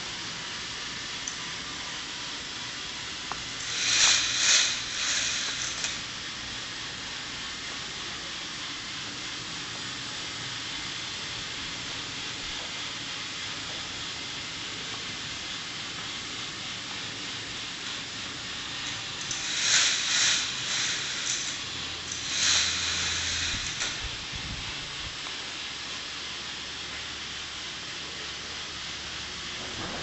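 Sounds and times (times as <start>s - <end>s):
motorized chain lift whirring: 3.0s - 7.7s, 16.9s - 25.2s
toy coaster cars rattling: 3.4s - 6.6s, 16.9s - 24.2s.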